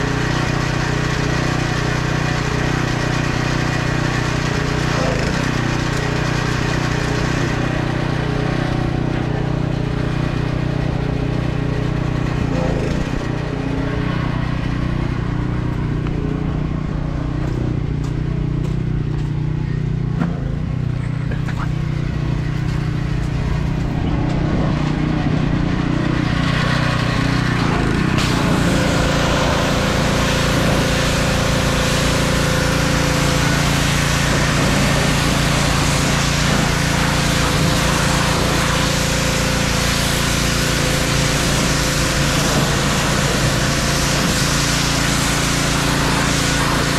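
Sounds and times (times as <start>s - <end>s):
pressure washer engine running: 0.0s - 46.9s
water spray hissing on metal: 26.1s - 46.9s.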